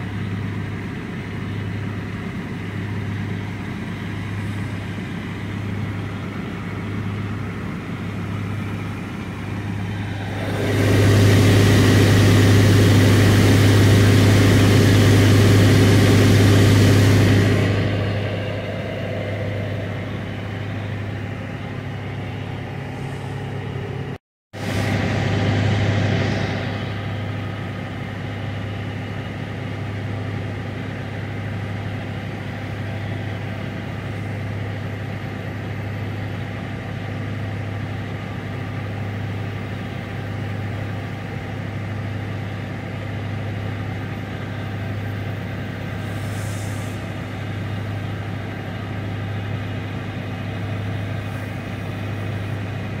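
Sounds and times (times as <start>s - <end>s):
truck engine idling: 0.0s - 53.0s.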